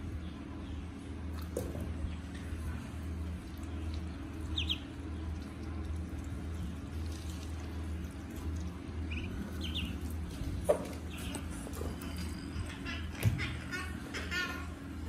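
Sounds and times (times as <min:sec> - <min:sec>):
steady low hum: 0:00.0 - 0:15.0
ducklings peeping: 0:03.4 - 0:15.0.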